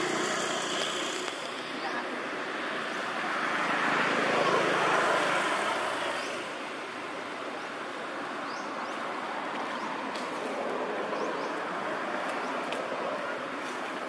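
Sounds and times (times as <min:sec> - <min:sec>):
outdoor rushing noise: 0:00.0 - 0:07.3.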